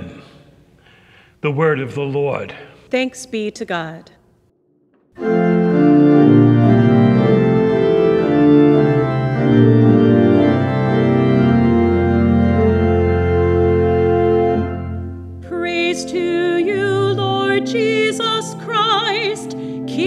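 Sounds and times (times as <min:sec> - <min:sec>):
deep bass organ note: 0:05.0 - 0:15.4
church organ chords: 0:05.1 - 0:20.0.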